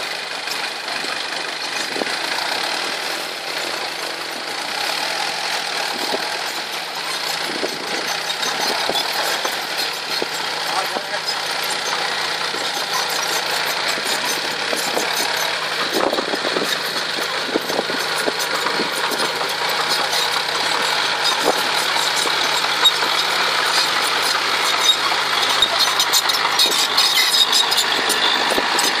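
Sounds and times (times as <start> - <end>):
truck engine running: 0.0 - 29.0.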